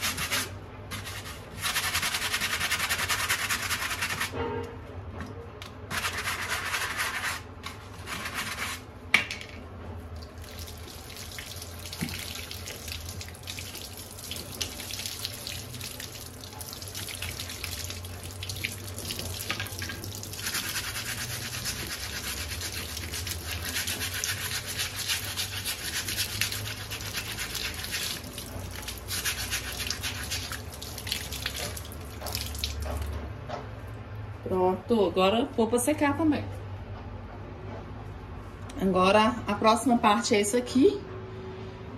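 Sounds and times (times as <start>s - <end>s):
plastic brush scrubbing filter: 0.0s - 4.3s, 5.9s - 8.9s, 17.2s - 33.1s
tap water running and splashing: 10.2s - 33.2s.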